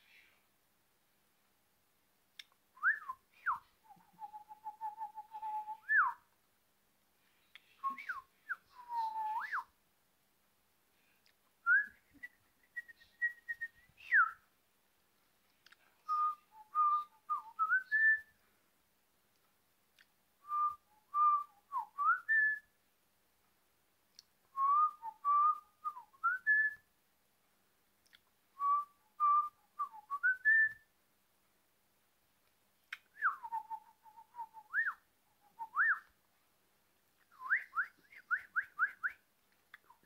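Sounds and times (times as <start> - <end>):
person whistling a tune: 7.8 - 9.7, 11.7 - 14.4
faint clicks: 15.0 - 16.0, 27.4 - 28.4.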